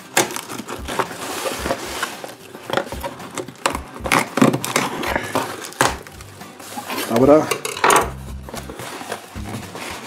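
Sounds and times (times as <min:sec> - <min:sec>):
knife cutting packing tape: 0:00.0 - 0:07.4
cardboard rustling: 0:00.0 - 0:07.5, 0:08.3 - 0:10.0.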